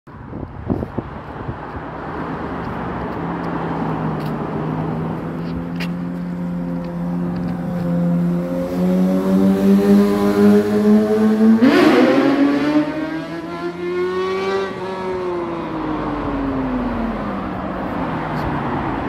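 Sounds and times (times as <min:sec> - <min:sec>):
motorcycle engine revving: 0:07.0 - 0:15.8.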